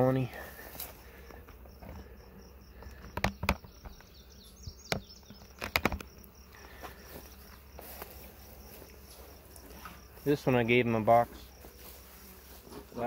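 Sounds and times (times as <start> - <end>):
honeybees buzzing: 0.0 - 13.0
sharp clicks or knocks: 2.8 - 4.1, 4.9 - 6.1.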